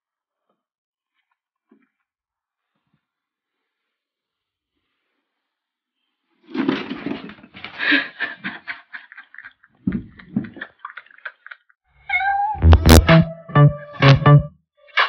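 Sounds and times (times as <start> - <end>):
cardboard box rustling and scraping: 6.5 - 7.5
guitar music: 12.3 - 14.6.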